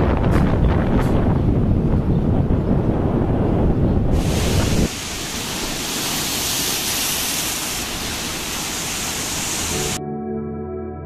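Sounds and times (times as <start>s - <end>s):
wind buffeting microphone: 0.0s - 8.3s
steady hiss: 4.2s - 10.0s.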